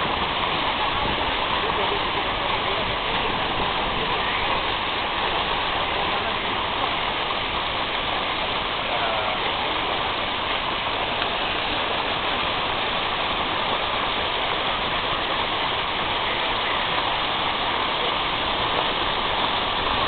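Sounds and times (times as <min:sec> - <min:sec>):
steady rushing noise: 0:00.0 - 0:20.0.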